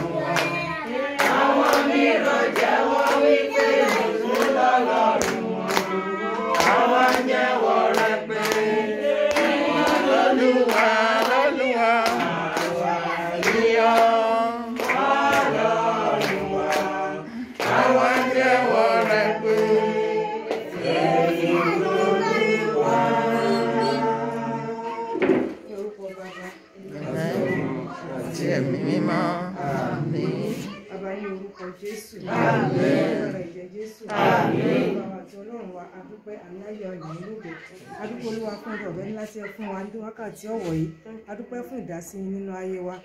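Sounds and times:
group of people singing: 0.0 - 25.8, 26.8 - 35.4
hand clapping: 1.2 - 17.0, 17.6 - 19.8.

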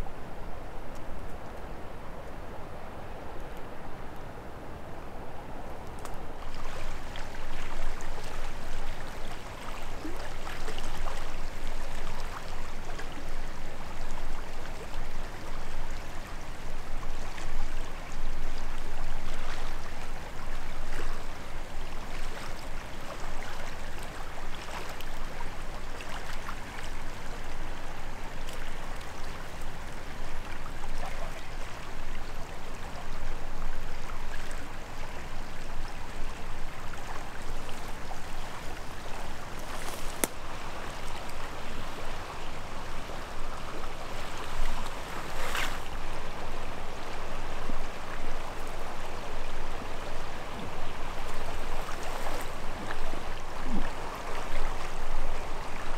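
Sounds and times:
faint ticks: 5.7 - 6.2
river water rushing: 18.5 - 55.9.

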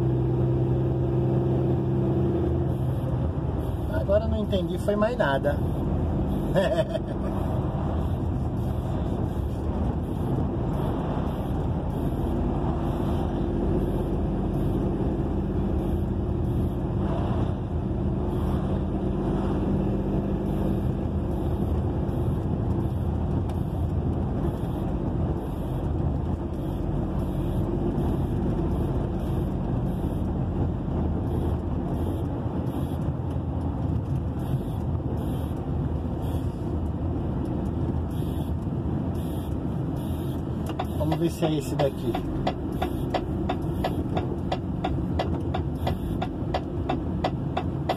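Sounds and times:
road noise: 0.0 - 47.9
truck engine running steadily: 0.0 - 47.9.

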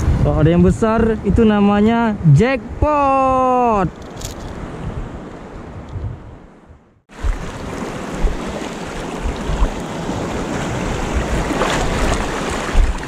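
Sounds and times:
wind buffeting microphone: 0.0 - 13.0
sea surf washing on shore: 7.1 - 13.0.

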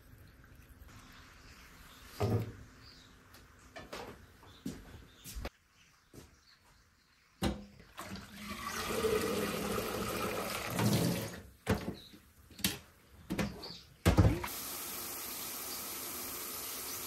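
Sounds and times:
water pouring into steel sink: 7.9 - 11.4.

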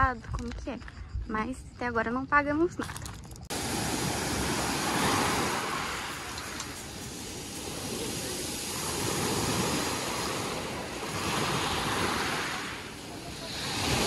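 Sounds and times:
waves on pebble beach: 3.5 - 14.0.

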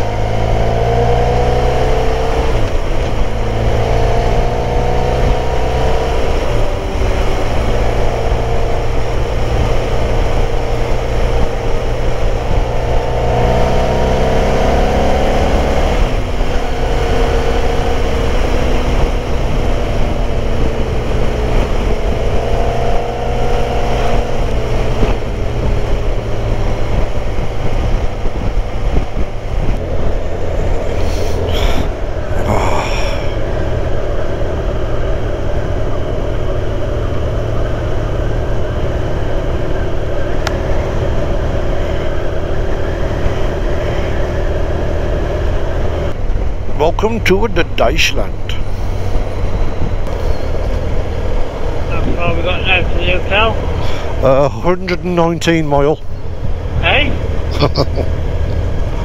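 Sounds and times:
motorcycle engine rumble: 0.0 - 59.0
wind rushing: 11.3 - 46.9, 47.6 - 59.0.

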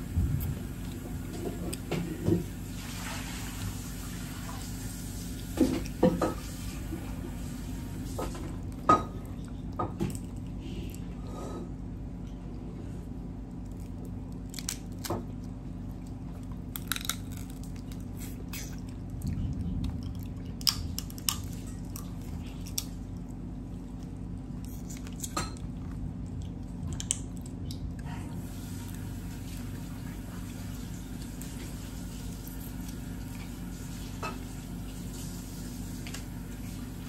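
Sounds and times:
low hum: 6.9 - 28.4
chewing: 12.2 - 29.0
crab shells snapping: 14.3 - 15.3, 16.6 - 18.8.

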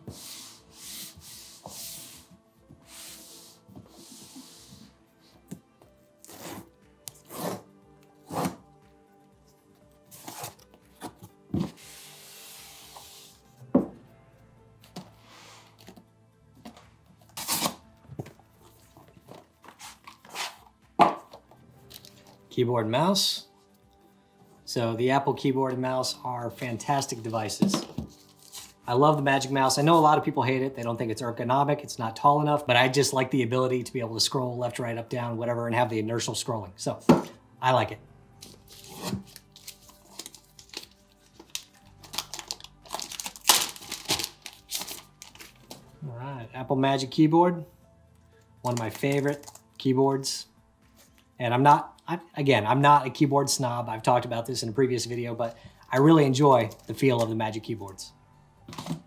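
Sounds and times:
faint background music: 0.0 - 59.0
cardboard packaging rustling: 38.4 - 45.9.

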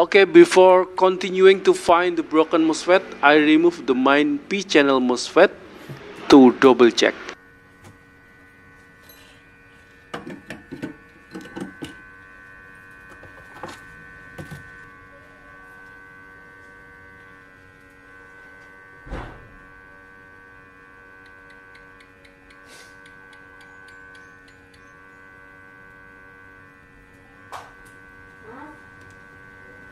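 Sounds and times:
hot air station humming: 0.0 - 29.9
thump: 19.1 - 19.6.

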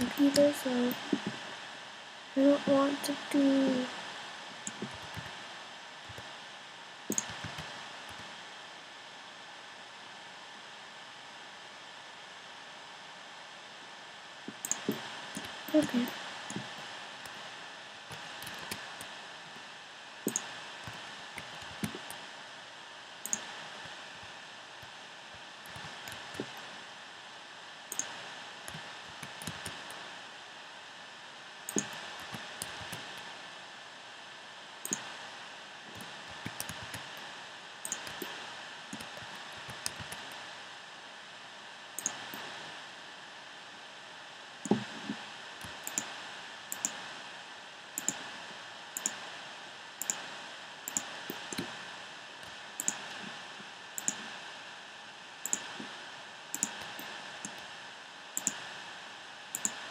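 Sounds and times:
recording hiss: 0.0 - 59.9
computer keys and mouse clicks: 7.1 - 8.2, 14.5 - 17.4, 18.1 - 19.1, 20.3 - 22.1, 23.3 - 23.5, 27.9 - 30.0, 31.7 - 33.2, 34.8 - 35.1, 35.9 - 37.2, 37.8 - 40.3, 42.0 - 42.5, 45.6 - 46.1, 46.7 - 47.0, 48.0 - 48.2, 49.0 - 49.2, 50.0 - 50.2, 50.9 - 51.7, 52.8 - 53.2, 54.0 - 54.2, 55.4 - 55.7, 56.6 - 57.6, 58.4 - 58.6, 59.6 - 59.8.

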